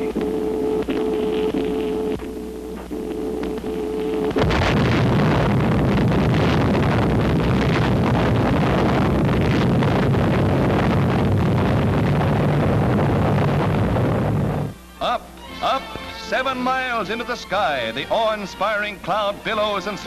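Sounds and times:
steady tone: 0.0s - 15.7s
deep rumble: 3.7s - 14.8s
explosion blast: 4.3s - 14.7s.

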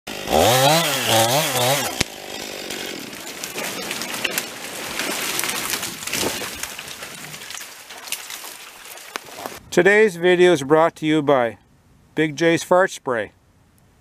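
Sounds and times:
chainsaw revving: 0.1s - 6.4s
tree wood cracking and snapping: 0.1s - 9.6s
tree falling to ground: 0.2s - 9.6s.

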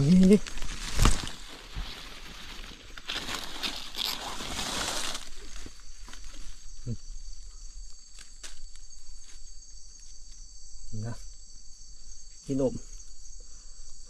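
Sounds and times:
leaves and brush rustling: 0.0s - 10.5s
crickets and insects chirring: 0.0s - 14.0s.

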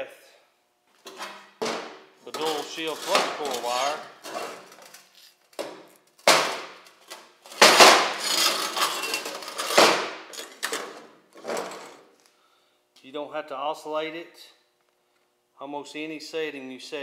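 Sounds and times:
metal scraping rasp: 2.3s - 4.4s
steel plates clanging: 8.1s - 9.8s.

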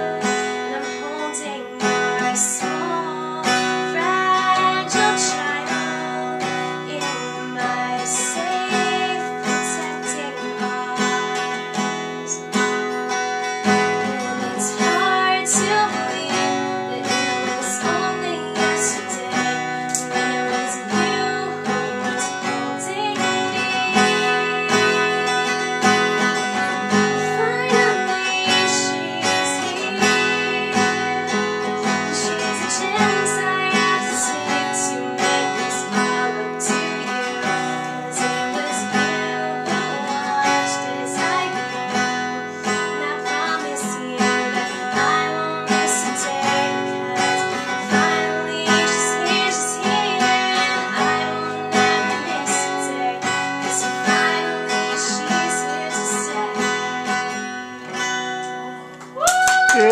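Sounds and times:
woman singing: 0.0s - 58.1s, 59.2s - 59.9s
acoustic guitar strumming: 0.0s - 59.2s.

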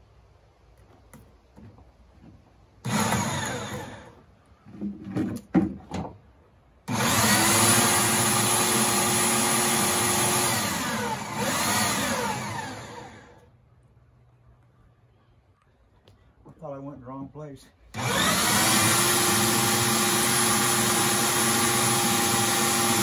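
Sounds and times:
electric drill boring into log: 2.8s - 4.1s, 6.9s - 13.4s, 17.9s - 23.0s.

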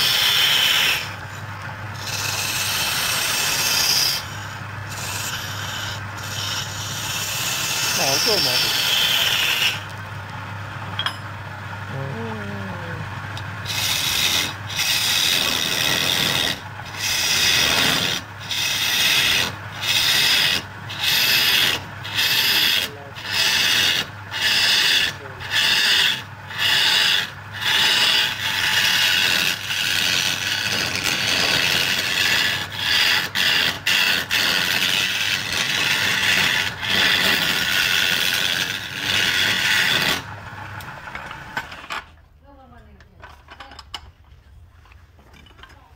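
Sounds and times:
lathe humming: 0.0s - 41.9s
wood shavings rubbing hiss: 2.0s - 9.9s.

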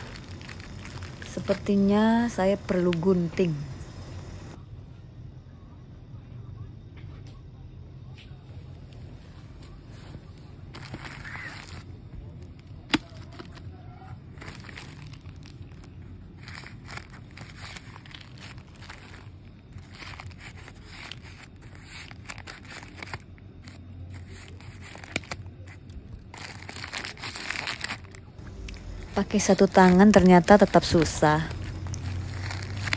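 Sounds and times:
plastic bag crinkling: 0.0s - 4.0s, 10.7s - 32.9s.

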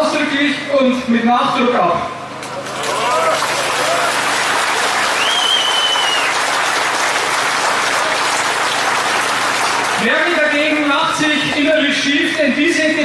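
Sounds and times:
crowd applauding: 2.4s - 12.0s
high whistle-like tone: 5.2s - 6.4s.

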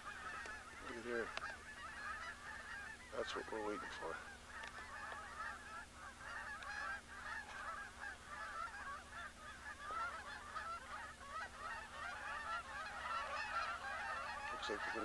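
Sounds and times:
geese honking in flight: 0.0s - 15.0s.

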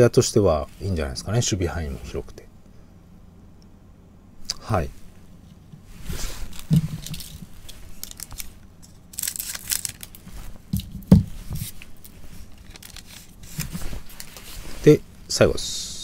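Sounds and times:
foil wrapper crinkling: 6.4s - 14.6s
scissors snipping foil: 8.0s - 10.2s.

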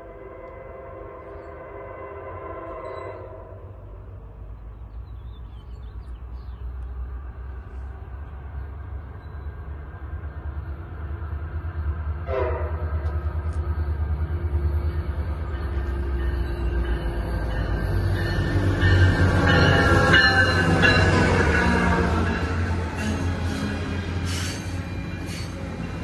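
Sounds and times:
train horn: 0.0s - 3.9s, 12.1s - 13.7s, 15.1s - 23.8s
diesel locomotive engine rumble: 0.0s - 26.0s.

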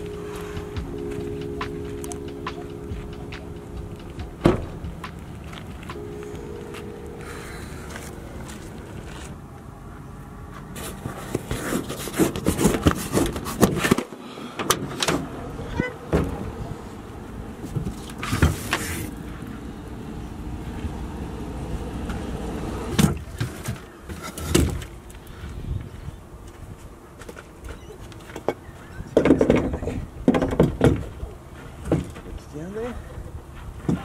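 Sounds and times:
low steady rumble: 0.0s - 10.5s.

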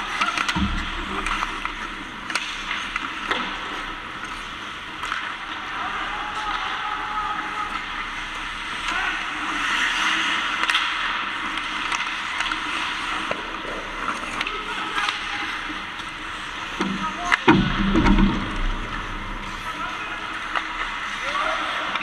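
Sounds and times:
skate blades scraping ice: 0.0s - 17.4s
hockey sticks and puck clacking: 0.0s - 22.0s
low thumps and scrapes: 16.0s - 19.8s.

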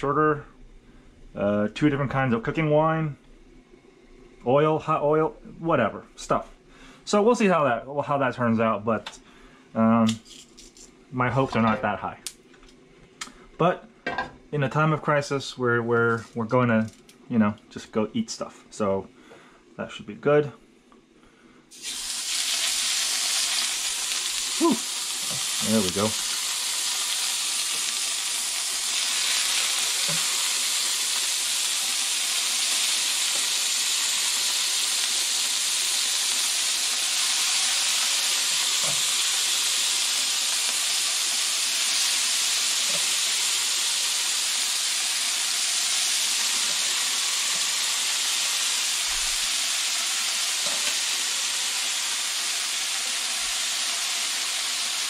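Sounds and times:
beef sizzling in oil: 21.7s - 55.0s.

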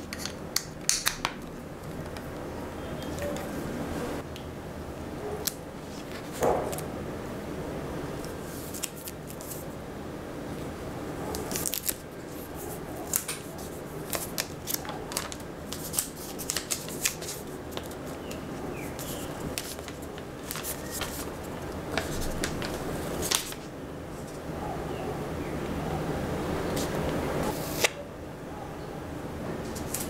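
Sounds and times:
protective film peeling: 11.4s - 12.0s, 13.1s - 23.7s
plastic clicks and crinkles: 14.1s - 18.4s.

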